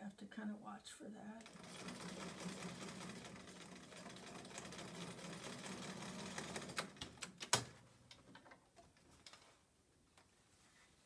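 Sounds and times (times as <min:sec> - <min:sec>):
sewing machine stitching: 0:01.4 - 0:07.4.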